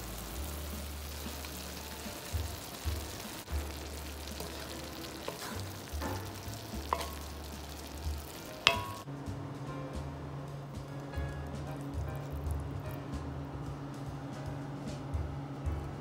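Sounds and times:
stir-fry sizzling in a pan: 0:00.0 - 0:09.1, 0:11.6 - 0:12.9
wooden spoon scraping and knocking: 0:02.4 - 0:09.0.

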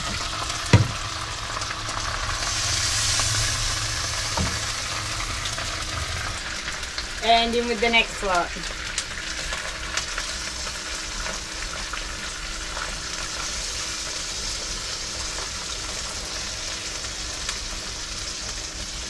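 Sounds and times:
fish sizzling in a frying pan: 0:00.0 - 0:19.0.

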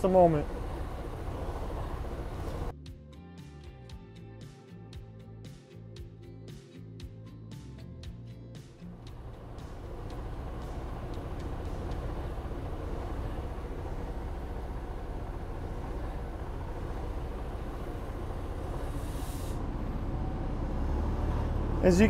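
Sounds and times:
diesel engine idling: 0:00.0 - 0:02.7, 0:08.9 - 0:22.0
brief hiss: 0:18.8 - 0:19.6.

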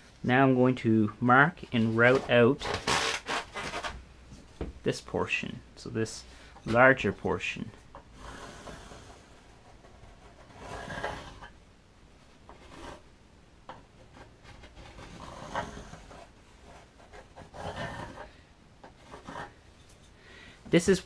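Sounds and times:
pencil scratching on surfboard: 0:08.2 - 0:11.5, 0:12.5 - 0:13.0, 0:14.1 - 0:18.3, 0:18.9 - 0:19.5.

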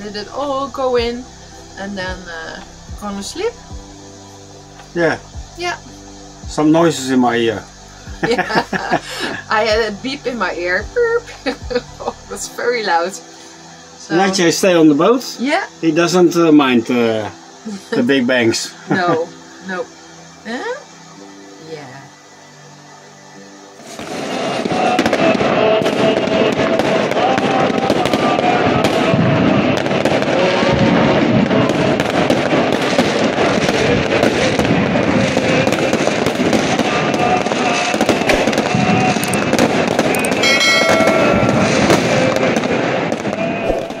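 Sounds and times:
large crowd voices: 0:05.9 - 0:15.0, 0:22.9 - 0:44.0
fireworks and firecrackers banging: 0:08.1 - 0:13.1, 0:23.7 - 0:44.0.

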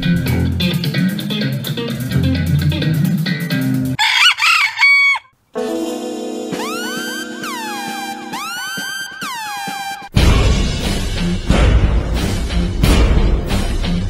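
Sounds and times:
plucked guitar music: 0:00.0 - 0:04.0
rooster crowing: 0:04.0 - 0:05.3
music with long held tones: 0:05.6 - 0:09.2.

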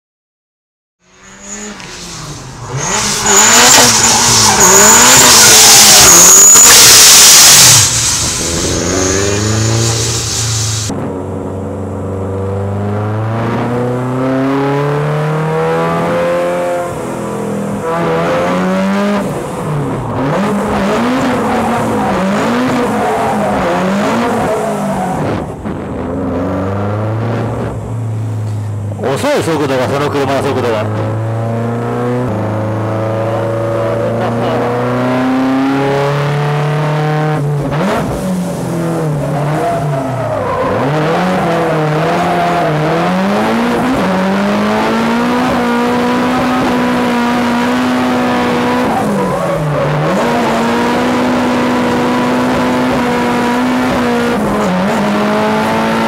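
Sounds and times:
car engine revving: 0:01.0 - 0:56.0.

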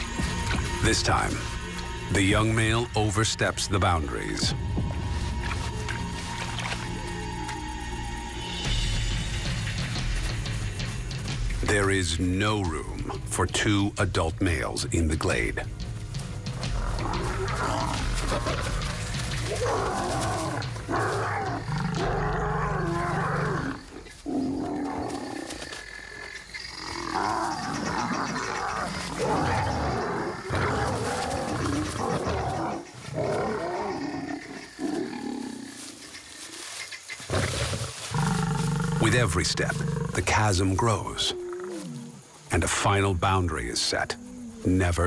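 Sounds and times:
lions snarling and roaring: 0:16.4 - 0:42.4.

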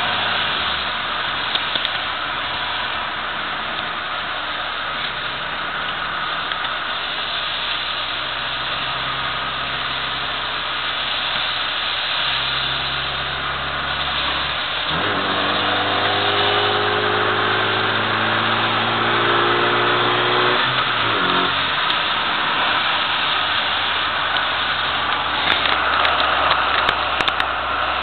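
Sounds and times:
tyres hissing on wet track: 0:00.0 - 0:28.0
car engine from inside cabin: 0:08.7 - 0:28.0.

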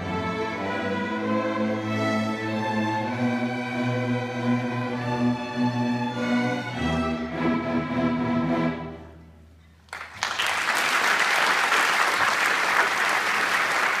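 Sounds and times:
audience applauding: 0:09.9 - 0:14.0.

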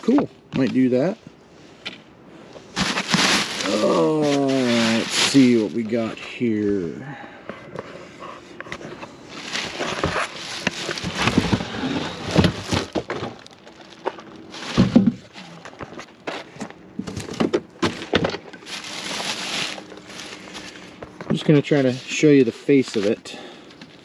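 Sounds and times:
cardboard scraping: 0:02.7 - 0:05.7, 0:07.8 - 0:16.1, 0:17.0 - 0:21.0
plastic bag crinkling: 0:02.8 - 0:06.0, 0:09.3 - 0:15.8, 0:18.6 - 0:20.9.

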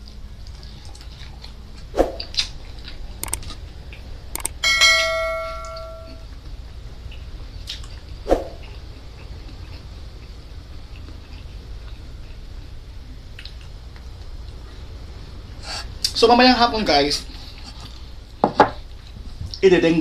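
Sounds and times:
mouse clicks: 0:03.2 - 0:03.4, 0:04.4 - 0:04.6
notification bell ringing: 0:04.4 - 0:06.2.

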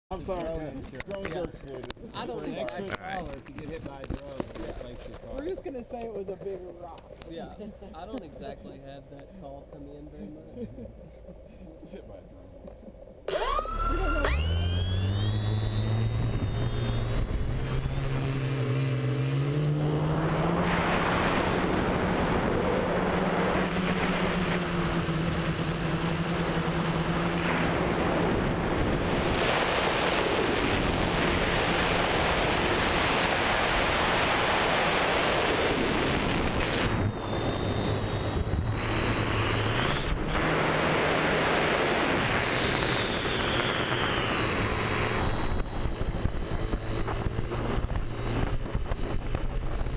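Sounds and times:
drone motors and propellers: 0:00.1 - 0:49.9.

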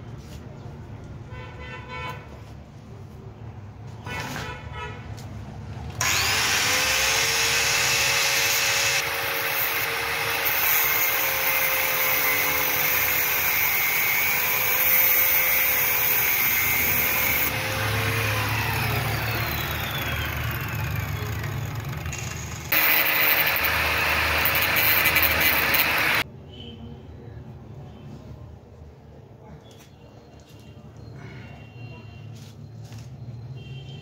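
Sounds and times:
power tool motor whining: 0:06.0 - 0:26.2.

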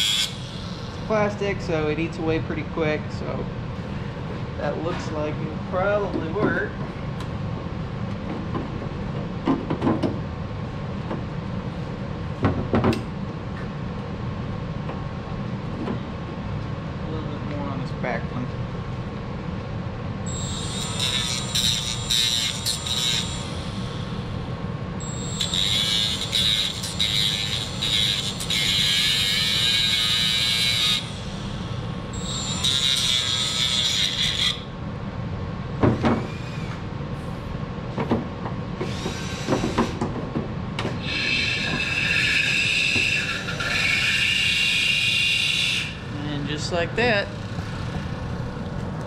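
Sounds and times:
rotary tool grinding plastic: 0:20.6 - 0:23.5.

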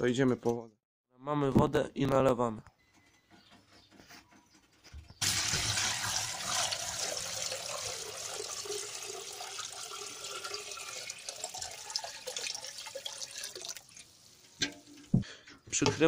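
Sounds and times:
water pouring into plastic bucket: 0:05.2 - 0:14.9.

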